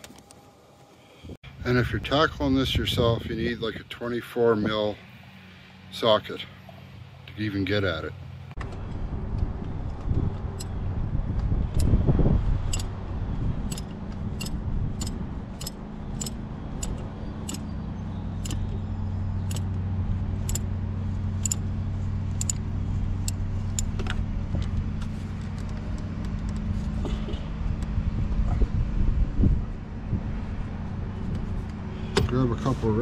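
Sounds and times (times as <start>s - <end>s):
steady low hum: 0.0s - 33.0s
ratchet wrench clicking: 13.7s - 17.6s, 22.4s - 22.6s.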